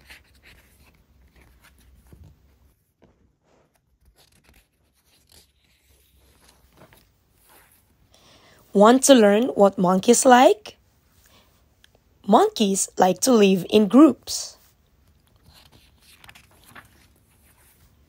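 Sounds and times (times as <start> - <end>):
book pages turning: 0.0 - 8.0, 14.9 - 18.0.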